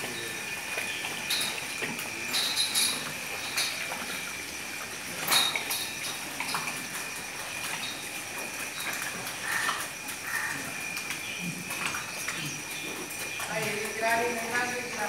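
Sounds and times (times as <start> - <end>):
steady hiss: 0.0 - 15.0
chains clinking on feed rail: 2.2 - 3.9.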